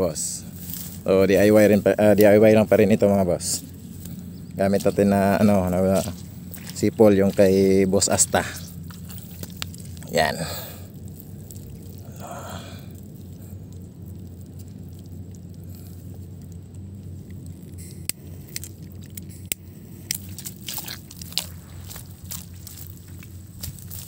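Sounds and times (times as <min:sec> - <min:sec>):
crunching and scraping in dry mud: 0:00.0 - 0:24.0
footsteps on dry ground: 0:00.4 - 0:12.0, 0:20.1 - 0:24.0.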